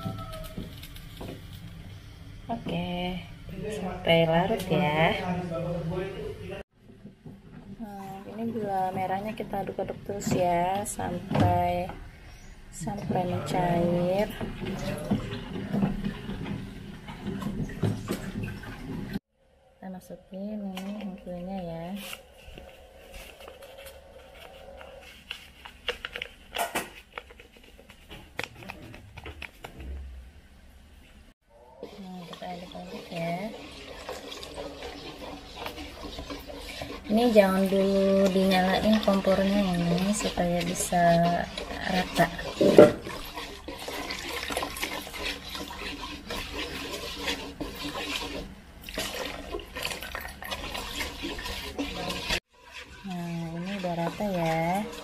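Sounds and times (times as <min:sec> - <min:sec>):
wooden spoon scraping: 0:20.8 - 0:29.9, 0:31.8 - 0:55.0
paper packets crinkling: 0:22.0 - 0:29.8
liquid pouring into metal pot: 0:31.8 - 0:55.0.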